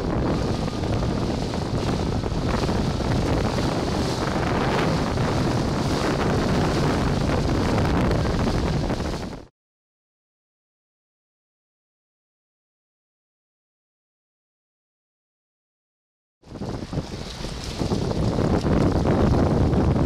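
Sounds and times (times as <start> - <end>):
choppy lake water: 0.0 - 9.5, 16.4 - 20.0
wind buffeting microphone: 0.0 - 9.5, 16.4 - 20.0.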